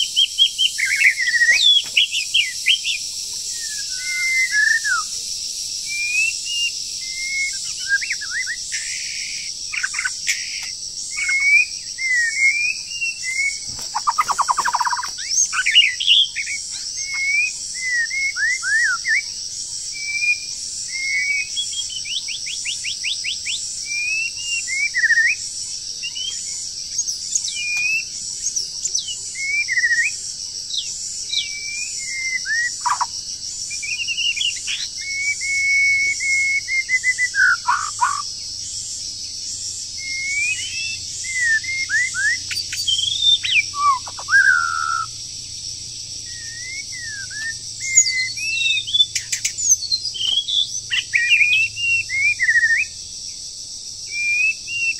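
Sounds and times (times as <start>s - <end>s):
bird singing whistled notes: 0.0s - 53.1s, 54.0s - 54.9s
harsh buzzy bird call: 6.0s - 19.1s, 40.0s - 45.2s
rattling bird trill: 13.1s - 17.4s.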